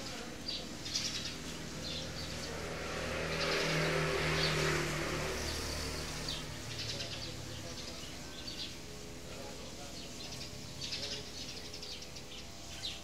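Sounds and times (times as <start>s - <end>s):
vehicle passing: 0.8s - 9.3s.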